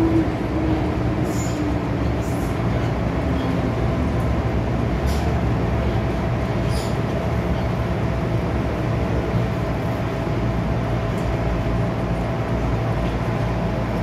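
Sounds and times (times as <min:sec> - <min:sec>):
train wheels and motors rumbling: 0:00.0 - 0:14.0.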